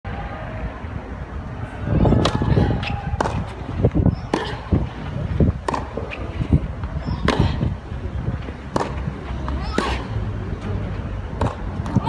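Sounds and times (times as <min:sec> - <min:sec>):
tennis ball hit by rackets: 0:02.1 - 0:04.8, 0:05.6 - 0:07.7, 0:08.6 - 0:10.2, 0:11.3 - 0:12.0.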